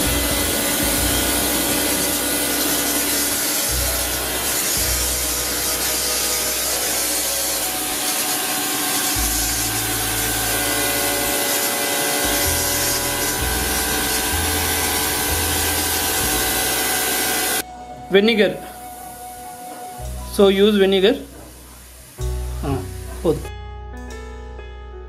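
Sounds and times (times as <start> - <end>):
motor and pump hum: 0.0 - 17.6
pressure washer spray hiss: 0.0 - 17.6.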